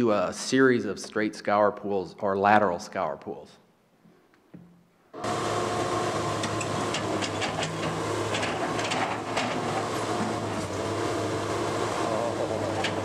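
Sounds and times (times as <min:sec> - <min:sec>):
excavator diesel engine drone: 0:05.2 - 0:13.0
machine clanks and knocks: 0:06.3 - 0:10.8, 0:12.4 - 0:13.0.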